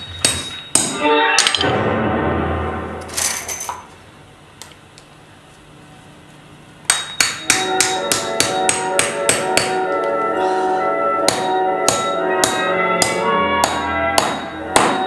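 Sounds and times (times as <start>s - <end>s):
hammer striking nails: 6.9s - 9.8s, 11.3s - 15.0s.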